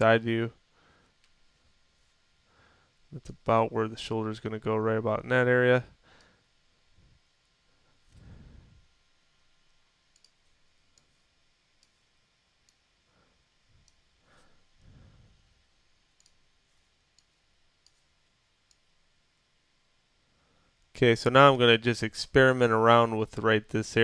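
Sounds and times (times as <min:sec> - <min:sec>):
computer mouse clicks: 0:10.1 - 0:11.1, 0:16.2 - 0:16.4.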